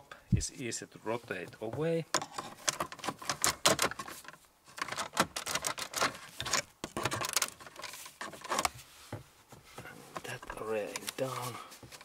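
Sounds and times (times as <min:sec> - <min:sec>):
plastic trim clicking and rattling: 0:02.1 - 0:08.7.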